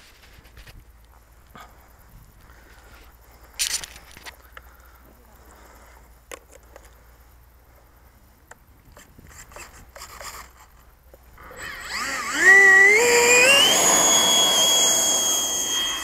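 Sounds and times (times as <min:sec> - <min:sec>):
faint clicks: 0:03.6 - 0:05.2
electric ducted fan whine: 0:10.7 - 0:16.0.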